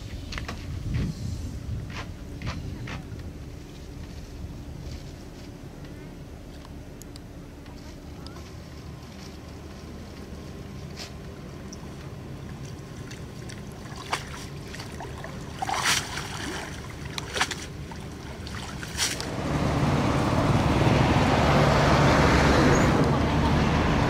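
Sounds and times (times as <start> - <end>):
wind rumble on microphone: 0.0 - 5.4
muddy water sloshing and splashing: 12.3 - 19.4.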